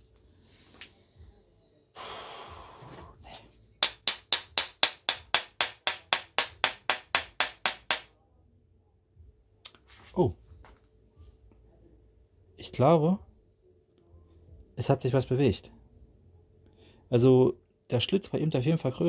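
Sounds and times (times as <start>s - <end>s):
hammer striking metal: 3.8s - 8.1s.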